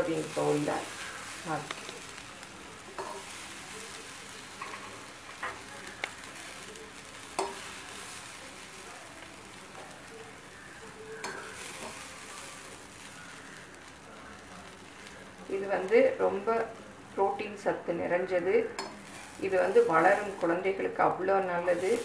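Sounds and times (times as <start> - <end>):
faint hiss: 0.0 - 22.0
spoon clinking against pan: 18.8 - 19.0.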